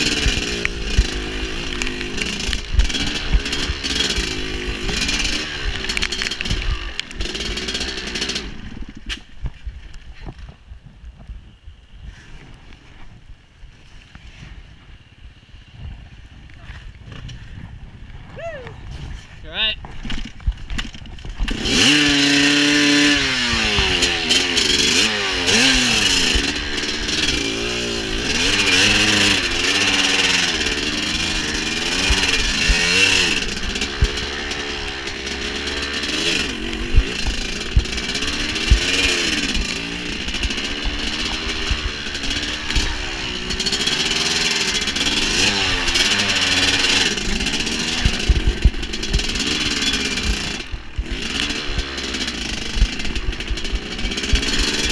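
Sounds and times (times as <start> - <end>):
dirt bike engine revving: 0.0 - 9.1, 20.8 - 54.9.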